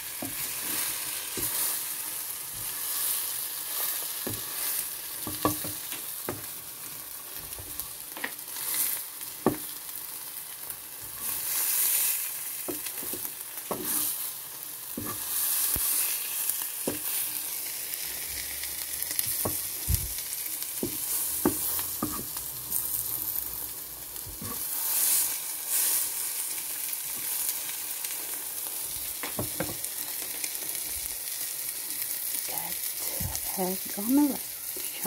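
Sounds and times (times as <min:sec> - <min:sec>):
omelette sizzling in frying pan: 0:00.0 - 0:35.0
wooden spatula scraping pan: 0:12.7 - 0:14.3, 0:15.0 - 0:16.2, 0:20.8 - 0:23.3, 0:24.3 - 0:25.9.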